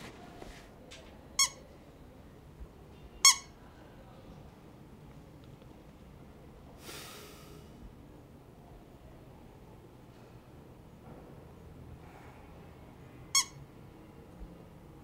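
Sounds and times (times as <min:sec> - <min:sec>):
soft rustling hiss: 0:00.0 - 0:01.3
squeaky toy squeaks: 0:01.4 - 0:01.6, 0:03.2 - 0:03.5, 0:13.4 - 0:13.6.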